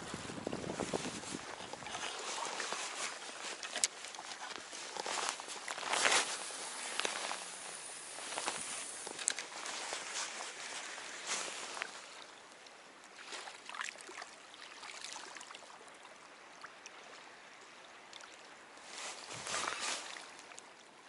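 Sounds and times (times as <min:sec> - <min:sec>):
wind on microphone: 0:00.0 - 0:02.2
water lapping at shore: 0:00.0 - 0:21.0.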